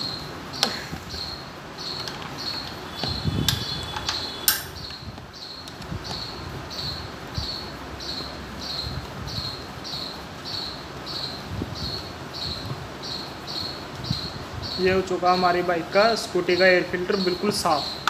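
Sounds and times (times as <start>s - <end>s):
cricket chirping: 0.0s - 14.9s
screwdriver clicks: 3.4s - 4.8s.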